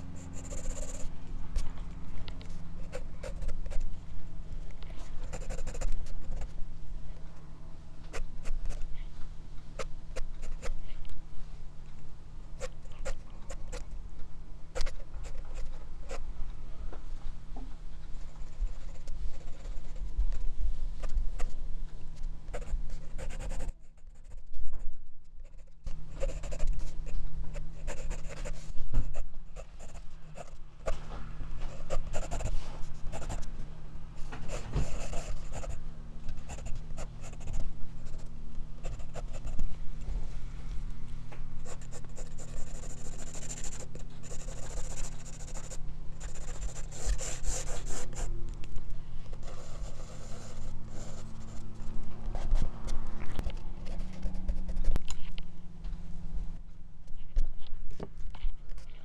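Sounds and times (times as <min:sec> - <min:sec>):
pencil scratching on paper: 0:00.0 - 0:01.1, 0:02.8 - 0:03.8, 0:05.1 - 0:06.5, 0:18.4 - 0:20.1, 0:22.5 - 0:24.5, 0:25.4 - 0:31.0, 0:31.7 - 0:33.5, 0:34.4 - 0:35.8, 0:36.4 - 0:38.2, 0:38.8 - 0:39.6, 0:41.6 - 0:48.3, 0:49.4 - 0:51.7.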